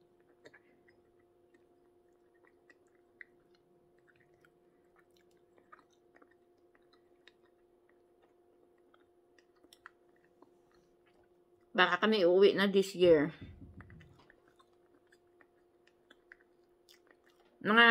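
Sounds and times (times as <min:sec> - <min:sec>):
person chewing: 0:00.0 - 0:11.7, 0:13.4 - 0:17.6
steady low hum: 0:00.0 - 0:17.9
mouth smacks: 0:13.4 - 0:17.5.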